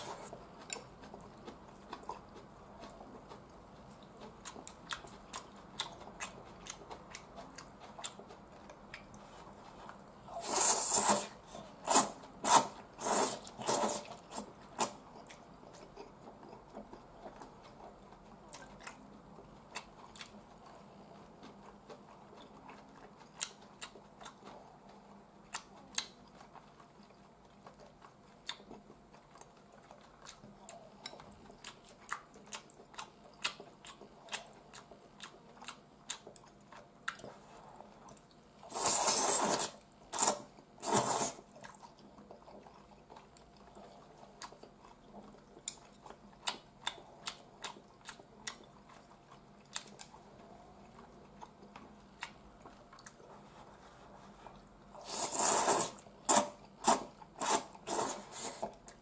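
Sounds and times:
noodle slurping: 10.4 - 14.1, 38.7 - 41.4, 55.0 - 58.7
wet chewing clicks: 21.4 - 39.6, 40.2 - 53.2.

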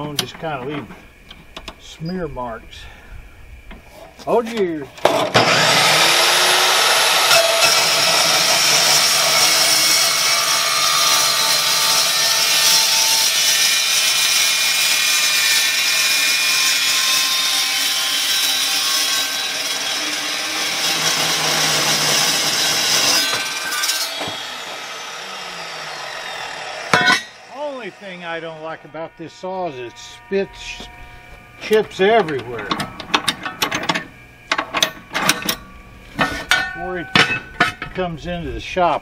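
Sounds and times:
chop saw screeching through steel: 5.4 - 32.6.

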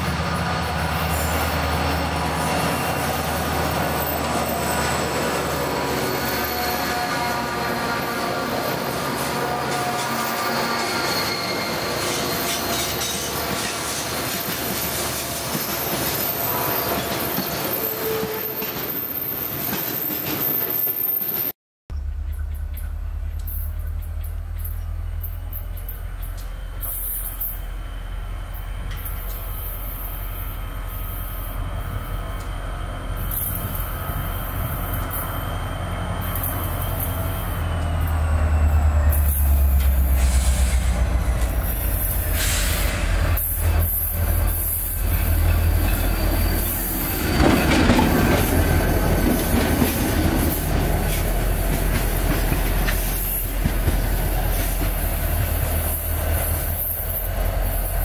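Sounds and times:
locomotive engine rumbling: 0.0 - 18.6, 21.9 - 58.0
wheels squealing on rail: 0.0 - 21.6, 22.3 - 58.0
wagons clattering on track: 37.8 - 58.0.

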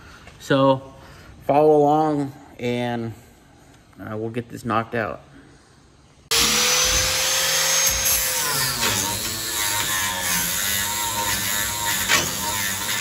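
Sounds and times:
angle grinder grinding metal: 6.3 - 13.0.

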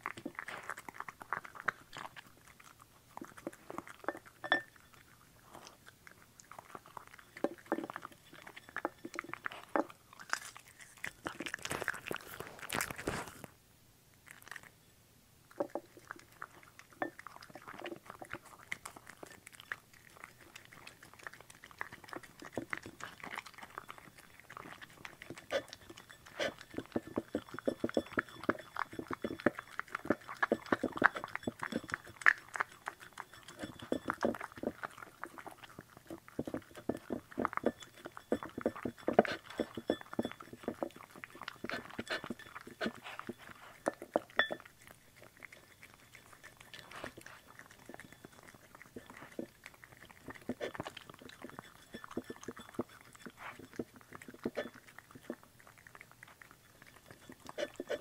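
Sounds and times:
dog chewing food: 0.0 - 13.6, 14.2 - 14.8, 15.5 - 58.0.

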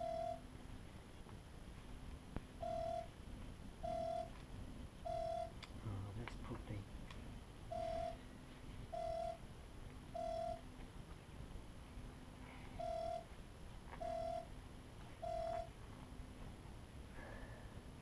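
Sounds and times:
mid-pitched electronic beeps: 0.0 - 0.4, 2.6 - 3.1, 3.8 - 4.3, 5.0 - 5.6, 7.7 - 8.3, 8.9 - 9.4, 10.1 - 10.6, 12.7 - 13.3, 14.0 - 14.5, 15.2 - 15.7.

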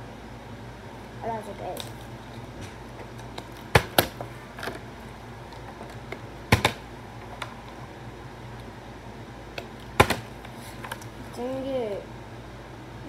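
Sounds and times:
plastic bottle hitting floor: 10.0 - 10.3.

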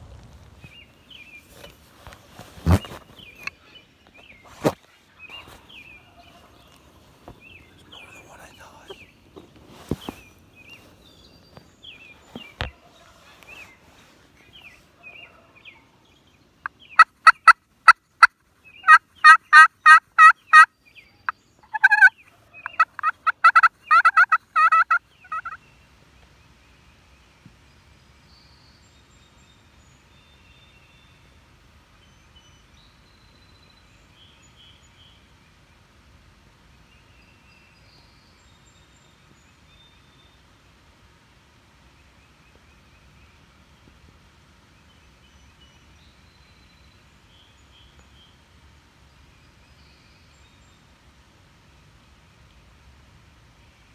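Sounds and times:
turkey yelping: 18.8 - 20.7, 21.7 - 22.1, 22.7 - 25.6.

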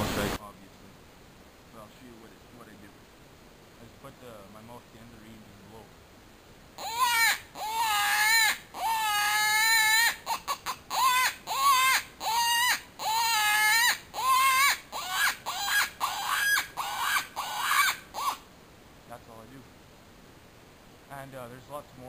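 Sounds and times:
predator call wailing cries: 6.8 - 18.4.

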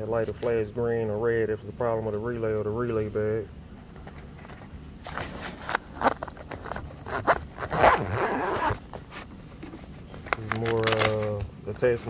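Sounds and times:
fabric pouch rustling: 5.1 - 11.3
zipper pulled on fabric pouch: 5.2 - 9.3.

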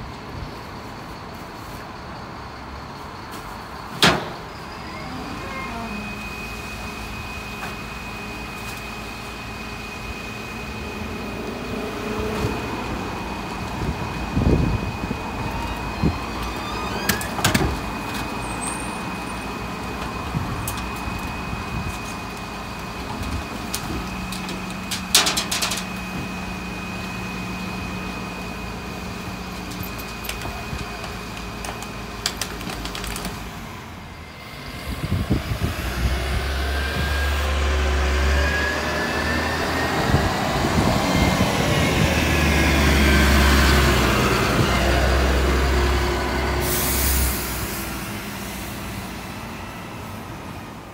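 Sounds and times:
diesel engine idling with whine: 0.0 - 50.9
heavy truck revving away: 10.2 - 29.6, 34.4 - 50.3.

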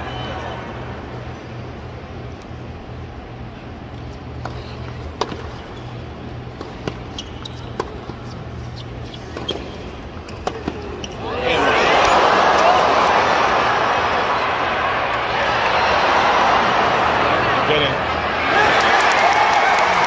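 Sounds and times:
low crowd hum: 0.0 - 20.0
tennis ball bouncing: 4.4 - 9.7, 10.3 - 10.9.

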